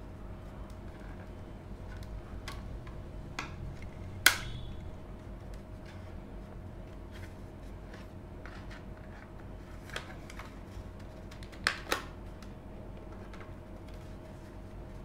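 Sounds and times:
plastic clips snapping: 4.2 - 4.6.

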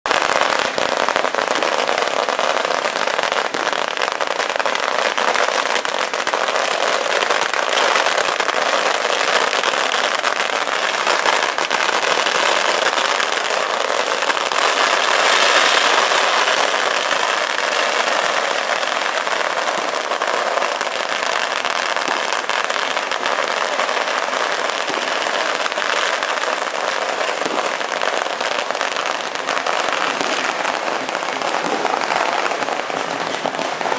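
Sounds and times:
firecrackers crackling: 0.0 - 33.9.

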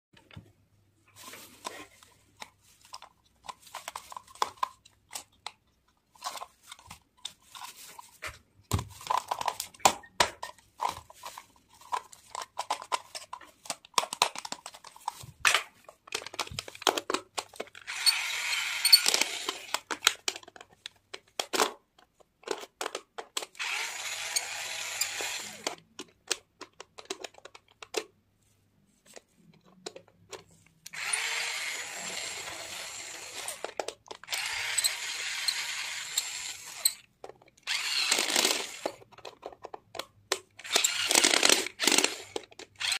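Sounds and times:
plastic toy parts clicking: 11.7 - 28.2, 29.6 - 42.9
toy drill whirring: 17.8 - 20.0, 23.4 - 25.8, 30.9 - 39.0, 40.6 - 42.9.

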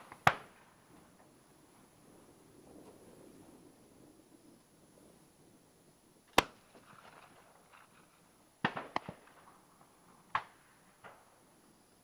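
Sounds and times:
sharp cracks or pops: 0.0 - 0.6, 6.3 - 7.9, 8.6 - 9.5, 10.3 - 11.2.

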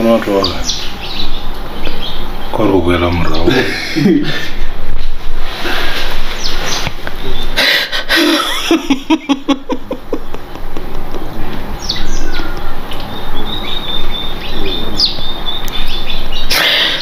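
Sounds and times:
woman sobbing: 7.8 - 10.4.

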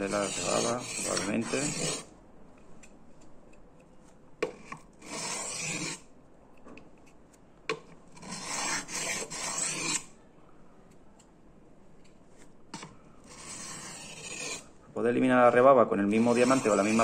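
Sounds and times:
knife rasping on sharpening plate: 0.1 - 2.1, 4.6 - 6.0, 8.2 - 10.1, 12.8 - 14.7, 16.2 - 17.0.

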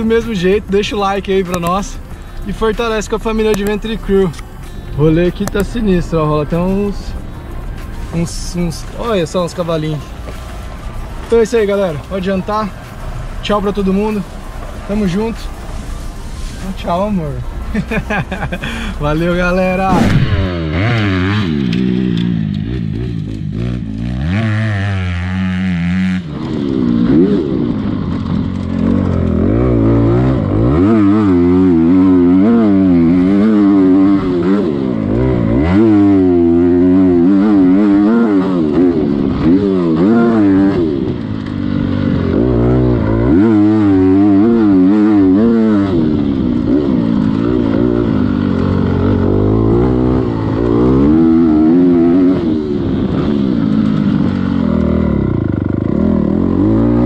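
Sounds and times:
dirt bike engine revving: 16.9 - 57.0.

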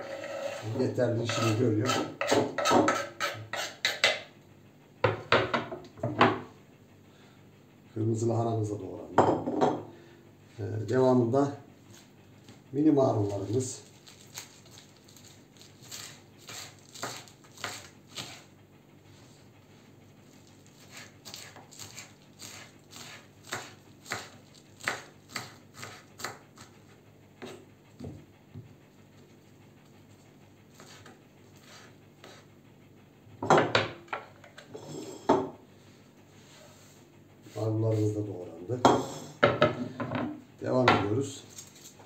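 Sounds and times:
knocks and scrapes: 0.0 - 3.6
knife chopping on cutting board: 1.3 - 4.3, 15.8 - 18.4, 20.8 - 26.8, 30.8 - 32.4.

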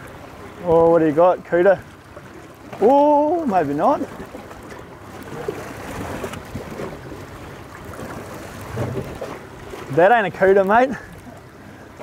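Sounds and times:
sea noise: 0.0 - 12.0.

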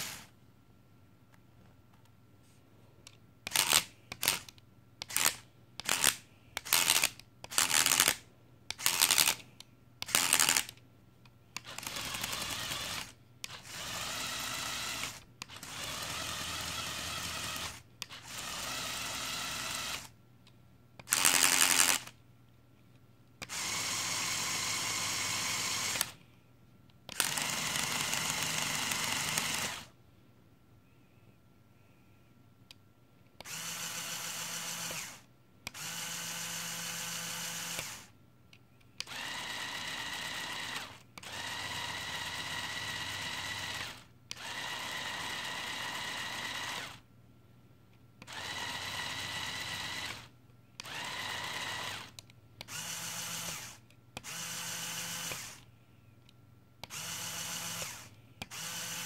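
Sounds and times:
electric motors turning drivetrain: 11.6 - 20.1, 23.4 - 26.2, 27.1 - 29.9, 33.4 - 38.1, 39.0 - 47.0, 48.3 - 55.6, 56.8 - 59.0.

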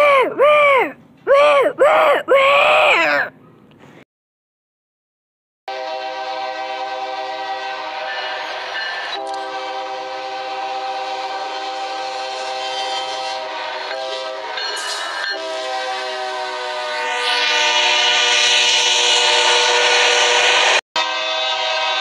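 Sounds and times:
locomotive air horn: 5.7 - 22.0.

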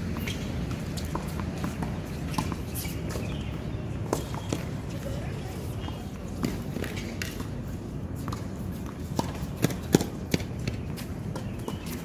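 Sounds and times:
sharp knocks on tennis court: 8.2 - 11.9.

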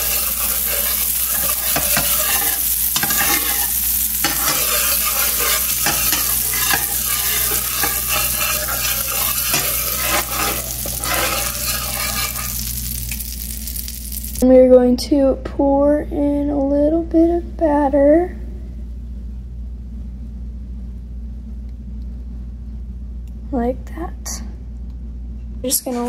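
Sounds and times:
spatula scraping a pan: 0.0 - 13.0
butter sizzling in a frying pan: 0.0 - 14.4.

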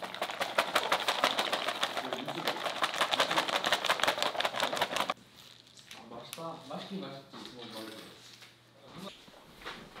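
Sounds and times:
wrapper crinkling: 0.0 - 6.0.

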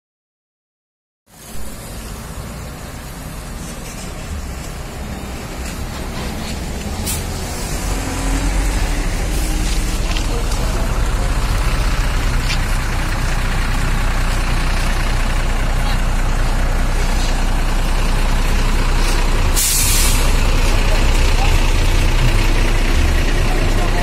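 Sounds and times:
diesel bus engine rumbling: 1.3 - 24.0
air brakes hissing: 6.1 - 8.1, 19.0 - 20.6.

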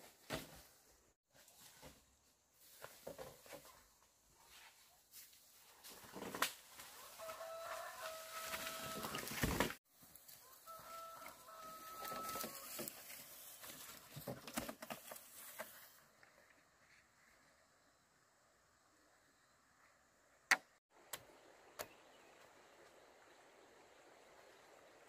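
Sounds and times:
rooster crowing: 6.9 - 9.4, 10.4 - 12.7.

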